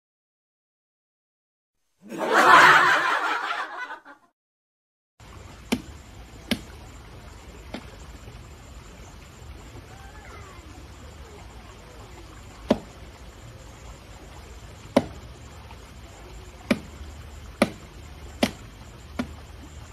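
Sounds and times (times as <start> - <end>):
faint background noise: 5.2 - 19.9.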